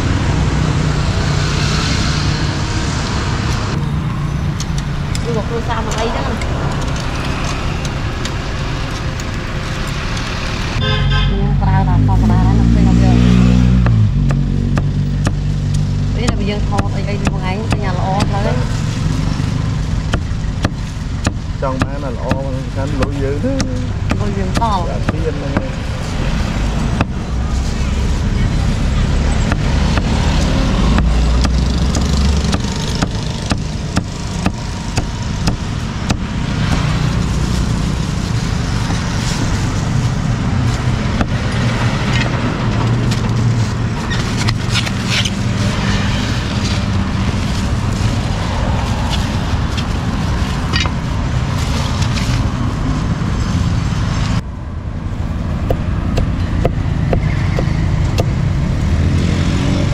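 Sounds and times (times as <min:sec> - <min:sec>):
street traffic: 0:00.0 - 0:59.9
cleaver chopping on wooden block: 0:13.8 - 0:15.4, 0:20.1 - 0:22.4, 0:30.9 - 0:37.0.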